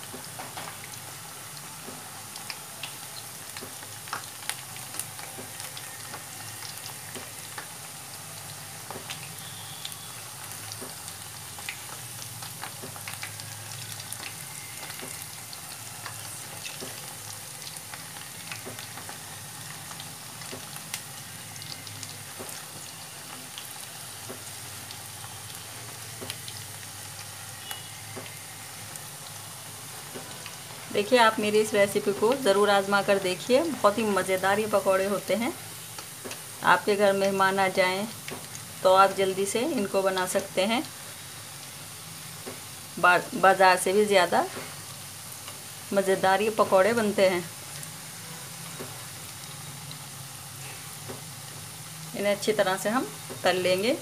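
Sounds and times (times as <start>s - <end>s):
food deep-frying in oil: 0.0s - 54.0s
oil popping and crackling: 1.8s - 32.5s, 38.1s - 38.8s, 47.4s - 53.5s.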